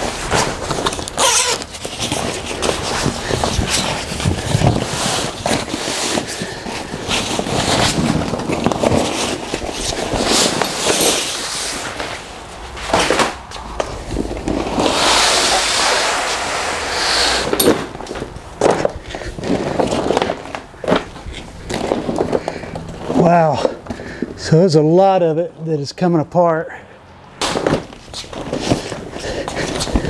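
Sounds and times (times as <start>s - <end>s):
rubberized fabric rustling and scraping: 0.0s - 24.6s, 27.4s - 30.0s
short high squeak: 1.2s - 1.6s.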